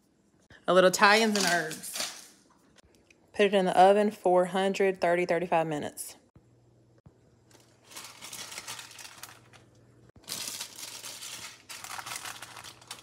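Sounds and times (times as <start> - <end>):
plastic pouch crinkling: 7.5 - 13.0.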